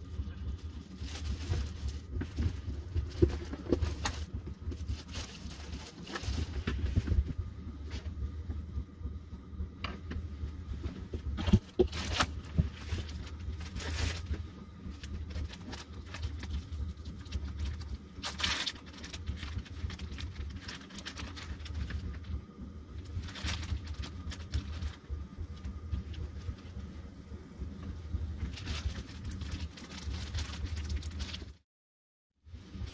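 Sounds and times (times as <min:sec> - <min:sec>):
plastic bag crinkling: 0:00.0 - 0:07.3, 0:11.4 - 0:22.4, 0:23.0 - 0:26.8, 0:28.4 - 0:31.6
low hum: 0:00.0 - 0:31.6.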